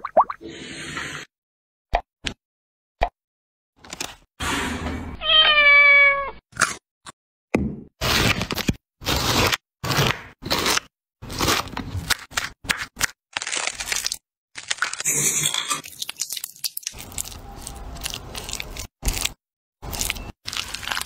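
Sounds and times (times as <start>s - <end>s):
knife crunching through pineapple: 9.0s - 21.0s.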